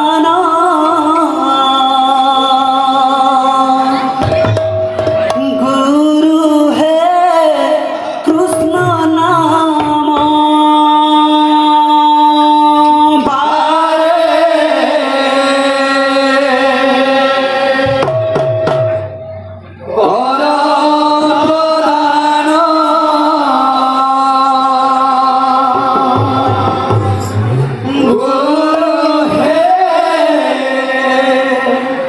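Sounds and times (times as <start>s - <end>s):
drum strokes: 4.2s - 6.4s, 17.8s - 19.7s, 25.6s - 29.4s
person singing long held notes: 5.2s - 18.3s, 19.8s - 32.0s.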